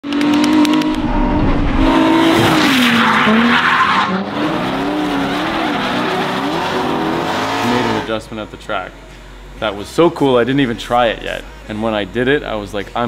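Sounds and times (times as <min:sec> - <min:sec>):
car engine revving hard: 0:00.2 - 0:08.2
tyres squealing and skidding: 0:02.0 - 0:08.1.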